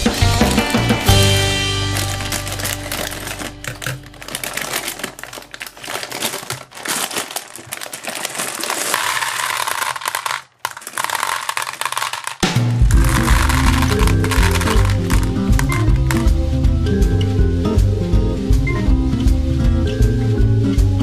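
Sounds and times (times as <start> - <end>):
music: 0.0 - 5.4, 12.4 - 21.0
gumballs rattling into plastic tub: 1.0 - 16.4
plastic bag crinkling: 1.1 - 16.4.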